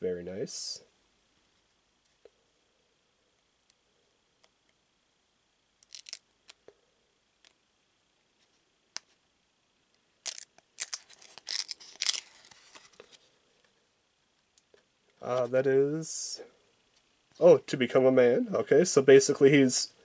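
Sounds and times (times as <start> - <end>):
trading cards scraping and snapping: 5.8 - 6.6, 10.2 - 13.2.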